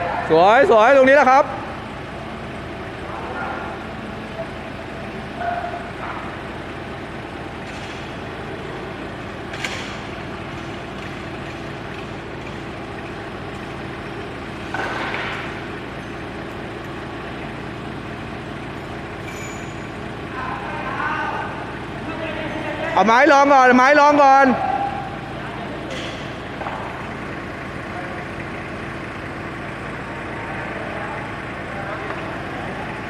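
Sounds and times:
forklift engine running: 0:00.0 - 0:33.0.

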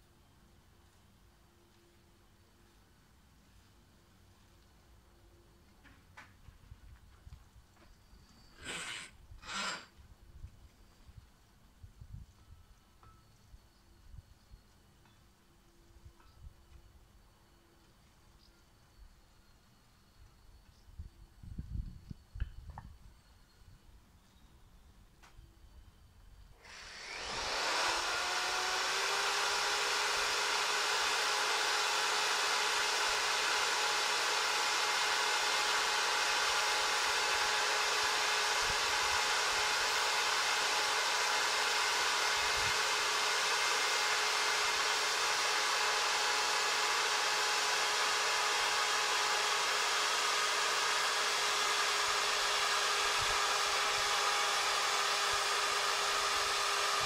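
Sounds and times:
electric drill motor whine: 0:08.0 - 0:10.0, 0:26.6 - 0:57.0.

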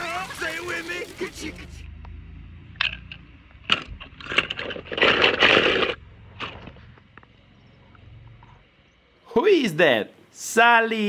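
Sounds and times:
toy cars clicking and tapping: 0:02.8 - 0:06.0
plastic scraping and rustling: 0:02.8 - 0:07.0.

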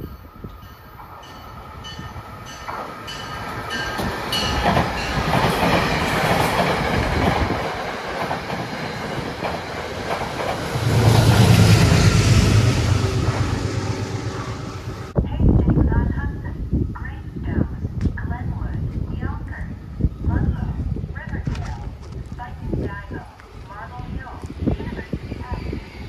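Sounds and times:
train wheels clacking over rails: 0:02.5 - 0:14.5.

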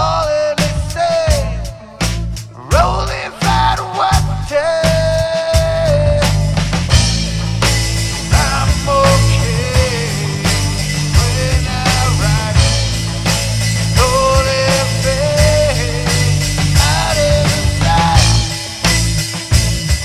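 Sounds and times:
rock band jamming: 0:00.0 - 0:20.0.

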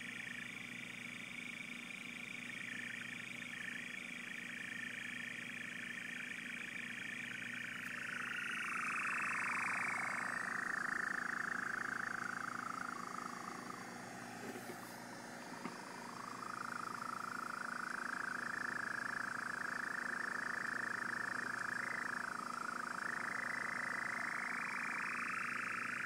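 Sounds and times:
buzzing warbling electronic tone: 0:05.8 - 0:26.0.

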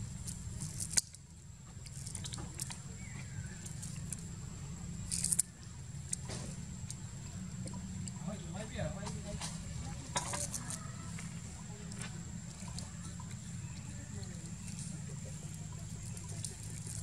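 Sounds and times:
steady low rumble: 0:00.0 - 0:17.0
sugar cane snapping: 0:00.3 - 0:01.2, 0:05.0 - 0:08.2.

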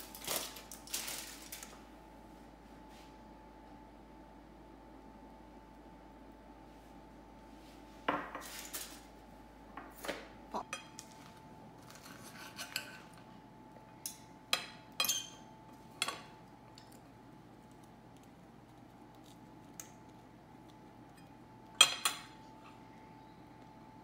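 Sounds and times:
cutlery scraping a plate: 0:11.8 - 0:13.3
cutlery clinking on a plate: 0:14.1 - 0:15.4, 0:21.2 - 0:22.4.

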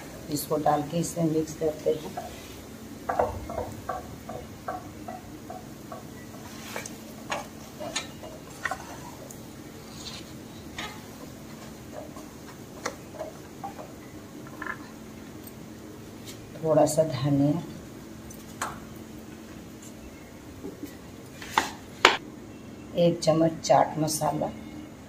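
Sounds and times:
wooden spatula scraping a pan: 0:06.4 - 0:13.9.

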